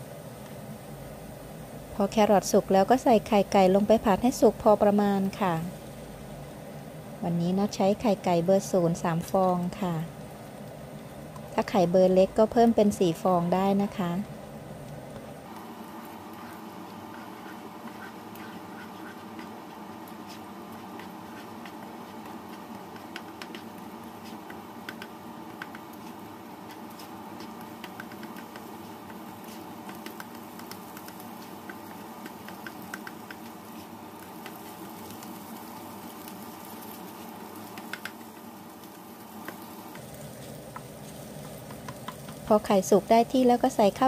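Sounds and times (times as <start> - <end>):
eggs sizzling in oil: 0.0 - 44.0
spatula scraping a wok: 16.2 - 19.6, 20.2 - 25.0
small ticks: 24.4 - 37.0, 37.6 - 42.5.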